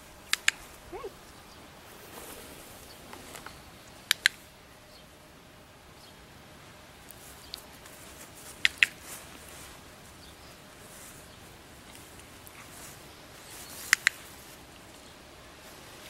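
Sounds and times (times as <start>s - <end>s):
dog-training clicker clicking: 0.3s - 0.6s, 4.1s - 4.4s.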